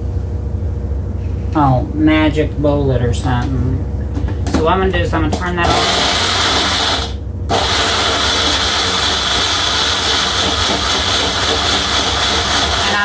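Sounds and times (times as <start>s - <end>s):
blender motor whirring: 5.6s - 13.0s.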